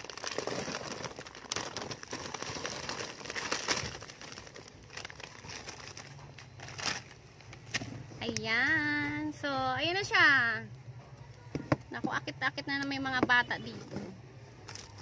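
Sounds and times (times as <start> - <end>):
plastic pouch crinkling: 0.0 - 7.8.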